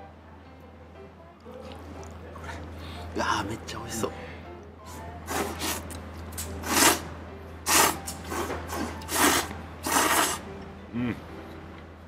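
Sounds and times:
man slurping noodles: 0:05.3 - 0:07.0, 0:07.7 - 0:10.4.

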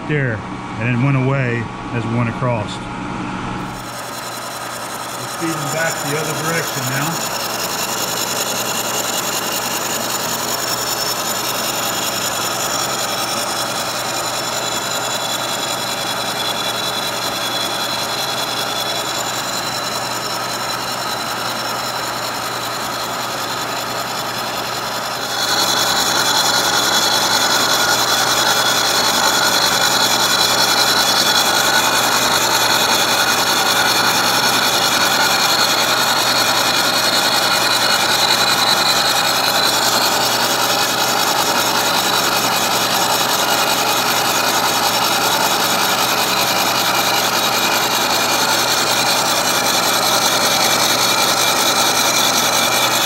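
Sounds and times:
milling machine cutting metal: 0:03.6 - 0:53.0.

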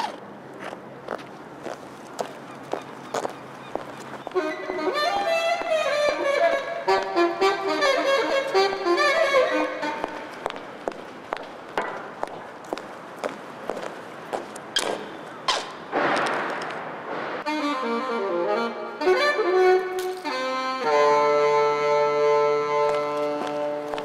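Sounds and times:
saxophone-like melody: 0:04.3 - 0:10.5, 0:17.4 - 0:24.0
high-heeled footsteps on concrete: 0:10.0 - 0:15.1, 0:22.8 - 0:24.0.

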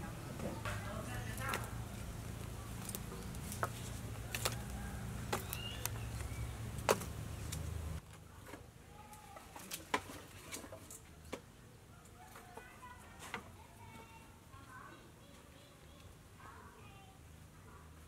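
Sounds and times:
birds chirping faintly: 0:00.0 - 0:09.3.

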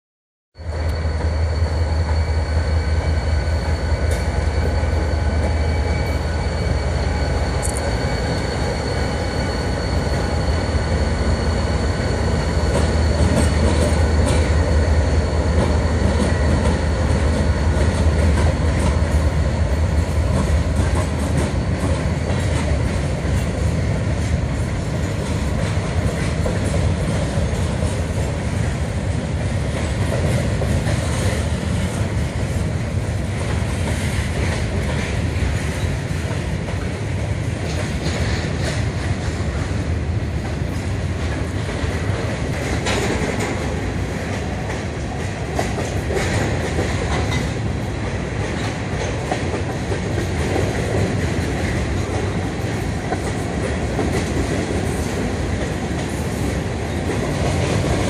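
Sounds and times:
high whine: 0:00.6 - 0:17.4
diesel locomotives rumbling: 0:00.6 - 0:58.0
train wheels clattering on rails: 0:00.6 - 0:58.0.

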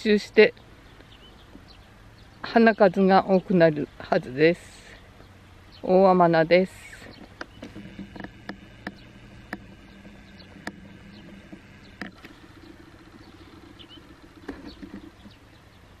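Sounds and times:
low engine hum: 0:00.0 - 0:16.0
sharp clicks: 0:06.9 - 0:15.4.

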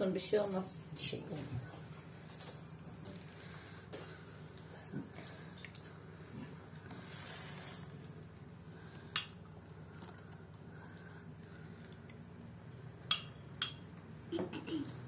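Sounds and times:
brush clinking glass bowl: 0:09.1 - 0:09.4, 0:13.0 - 0:13.9.

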